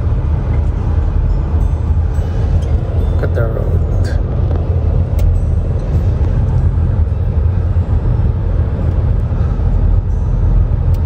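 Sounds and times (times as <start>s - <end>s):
car interior engine and tyre rumble: 0.0s - 11.0s.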